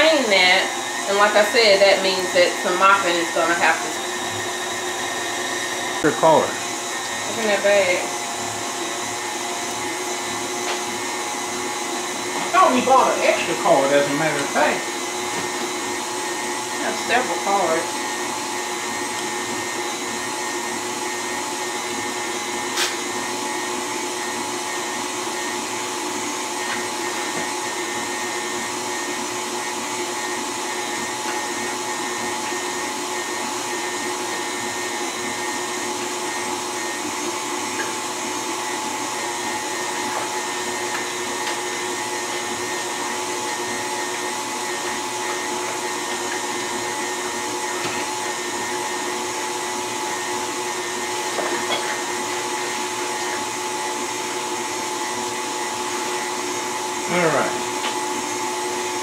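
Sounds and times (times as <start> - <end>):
stand mixer grinding meat: 0.0 - 59.0.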